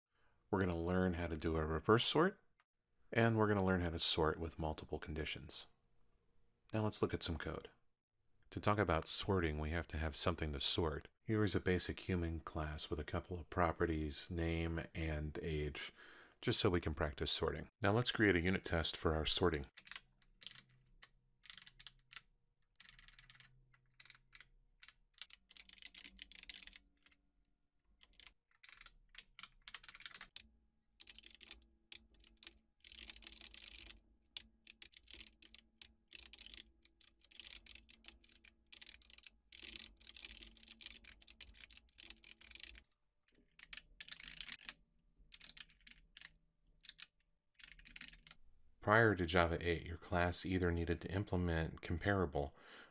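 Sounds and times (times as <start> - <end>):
faint keyboard typing: 19.4 - 27.2, 28.0 - 48.4.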